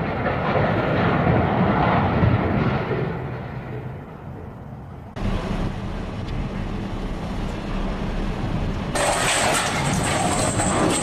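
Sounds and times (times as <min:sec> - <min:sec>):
vehicle engine running: 0:05.2 - 0:09.0.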